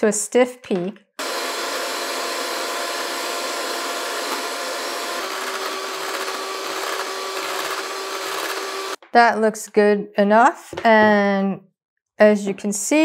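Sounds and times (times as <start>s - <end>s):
electric hand mixer whining: 1.2s - 9.0s.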